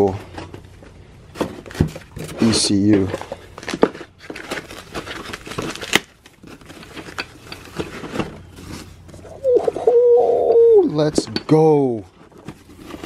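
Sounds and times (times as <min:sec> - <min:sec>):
foam sheet rustling and crinkling: 0:01.3 - 0:09.8, 0:12.0 - 0:13.0.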